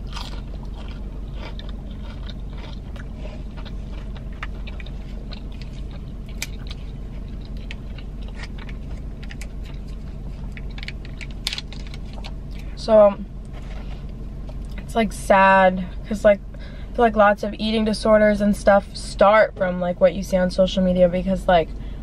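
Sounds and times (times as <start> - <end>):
chewing with wet mouth clicks: 0.0 - 12.7
low hum: 0.0 - 22.0.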